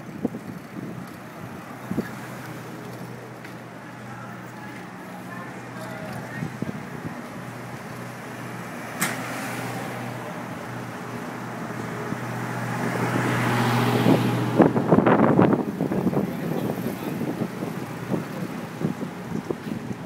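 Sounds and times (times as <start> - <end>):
wind noise: 0.0 - 2.5, 6.1 - 7.9, 12.0 - 20.0
vehicle engine humming: 0.0 - 20.0.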